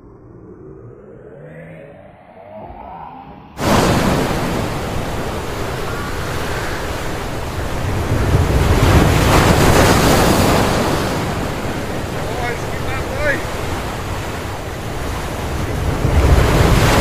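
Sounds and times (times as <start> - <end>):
wind buffeting microphone: 3.6 - 17.0.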